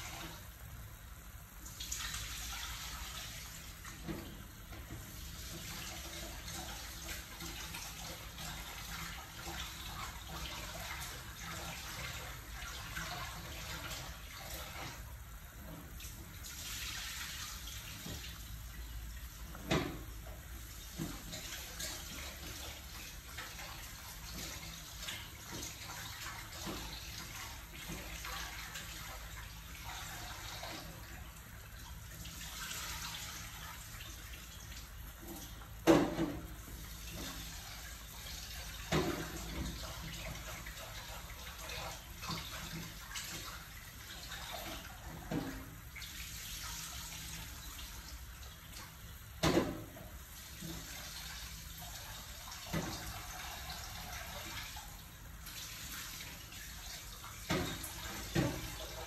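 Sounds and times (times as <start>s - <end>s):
soup boiling and bubbling: 0.0s - 59.0s.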